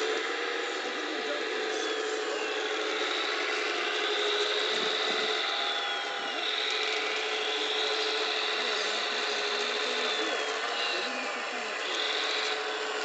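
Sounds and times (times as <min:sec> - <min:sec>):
hydraulic pump electric whine: 0:00.0 - 0:13.0.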